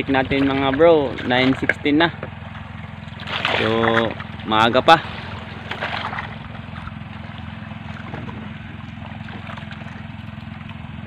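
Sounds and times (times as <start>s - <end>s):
boat engine throbbing: 0.0s - 11.0s.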